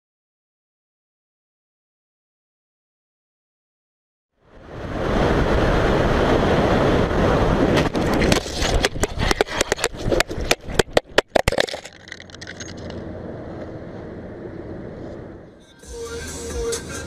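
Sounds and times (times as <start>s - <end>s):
wind and riding noise: 4.4s - 15.7s.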